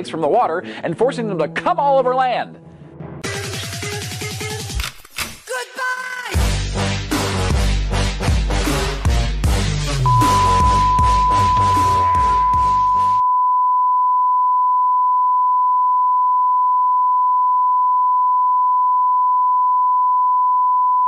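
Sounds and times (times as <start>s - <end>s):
electronic music: 6.4s - 13.2s
steady test tone: 10.1s - 15.1s.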